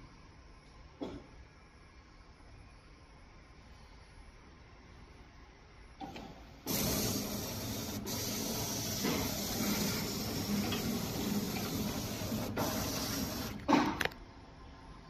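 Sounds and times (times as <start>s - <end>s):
wrapping machine hissing: 6.7s - 14.0s.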